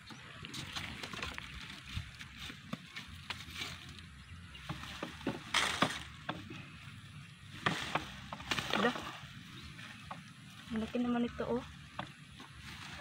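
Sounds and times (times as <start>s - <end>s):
roots pulled from loose soil: 0.2s - 13.0s
dry stalks snapping: 4.6s - 6.6s, 7.6s - 9.2s.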